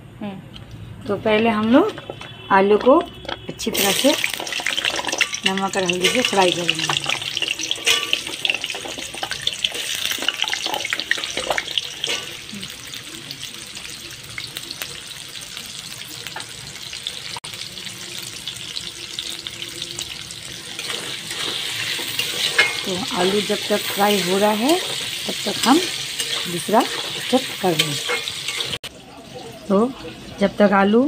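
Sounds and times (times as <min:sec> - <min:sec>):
spatula scraping a pan: 0:01.3 - 0:12.5, 0:20.6 - 0:28.8
potatoes sizzling in hot oil: 0:03.6 - 0:28.9.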